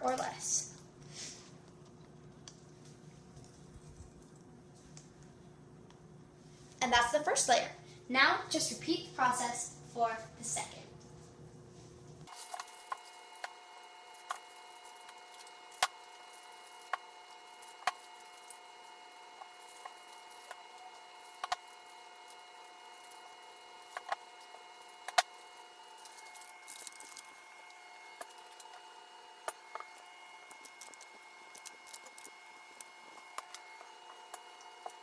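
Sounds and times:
faint steady hum: 0:00.0 - 0:35.0
utensils clicking and tapping: 0:19.3 - 0:27.4.

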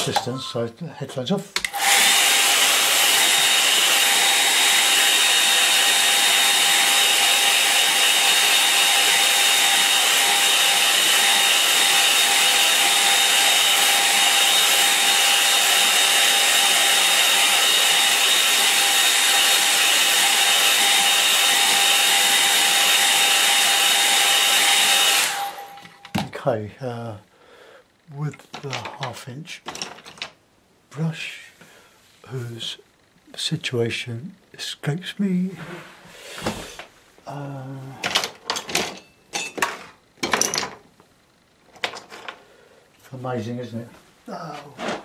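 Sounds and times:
hair dryer running: 0:01.6 - 0:26.1.

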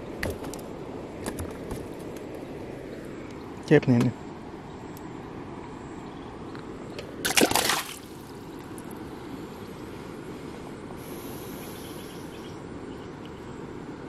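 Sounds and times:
low background noise: 0:00.0 - 0:14.0
water splash: 0:07.2 - 0:08.3.

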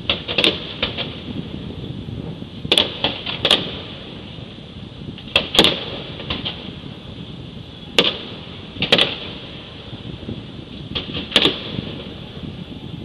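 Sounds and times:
fireworks bangs and cracks: 0:00.0 - 0:04.2, 0:05.2 - 0:07.0, 0:08.0 - 0:09.8, 0:10.9 - 0:12.6
steady background hiss: 0:00.0 - 0:13.0.

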